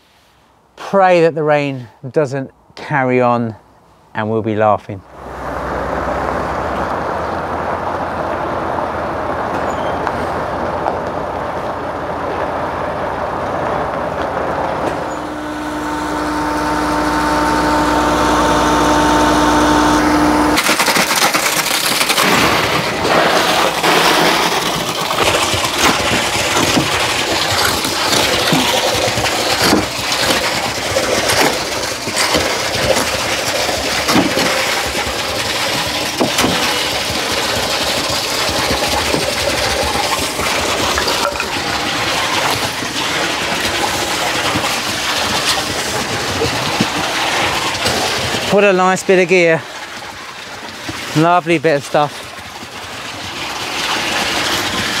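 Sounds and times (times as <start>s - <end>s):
pump whine: 5.0s - 55.0s
lorry and pump engines running: 5.2s - 55.0s
concrete pouring from hose: 11.5s - 55.0s.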